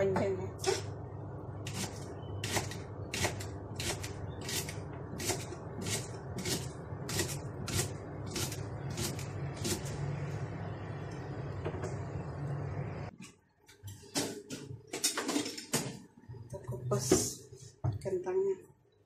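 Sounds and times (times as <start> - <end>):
steady low hum: 0.0 - 13.2.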